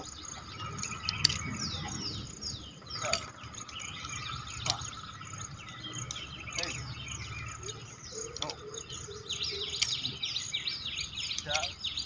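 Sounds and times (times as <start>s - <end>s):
insect drone: 0.0s - 9.2s
birds chirping: 0.0s - 12.0s.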